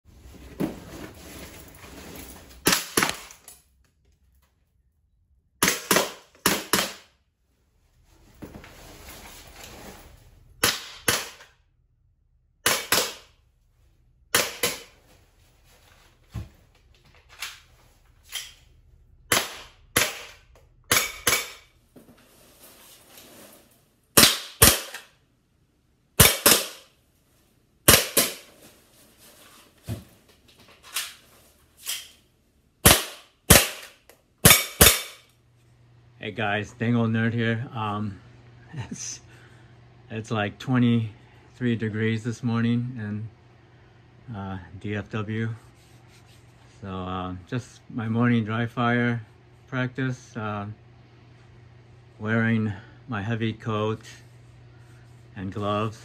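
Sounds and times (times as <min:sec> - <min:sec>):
pistol shots: 0:24.2 - 0:25.0, 0:26.2 - 0:26.9, 0:32.8 - 0:35.2.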